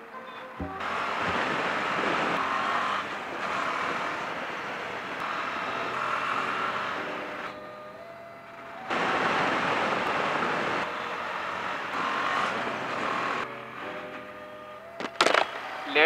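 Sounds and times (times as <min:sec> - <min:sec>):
motorcycle engine: 0:00.6 - 0:16.0
wind rushing over microphone: 0:00.8 - 0:05.2.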